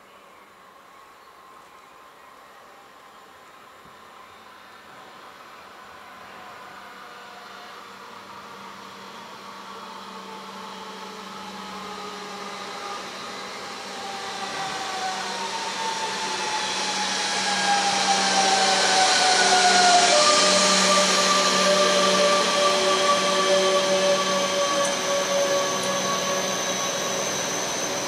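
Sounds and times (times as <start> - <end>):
train traction motors whining: 2.7 - 28.0
rushing wheel noise: 11.5 - 28.0.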